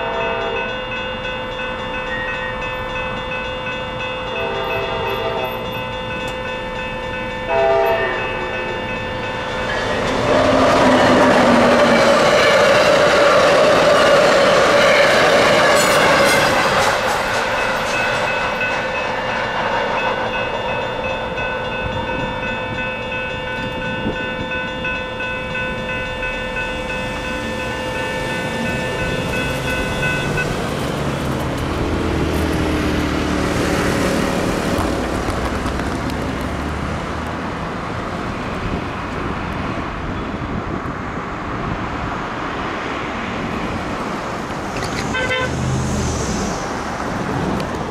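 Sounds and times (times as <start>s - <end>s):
crossing bells ringing: 0.0s - 35.8s, 44.8s - 47.2s
train rushing past: 0.0s - 47.9s
car driving past: 44.7s - 47.6s.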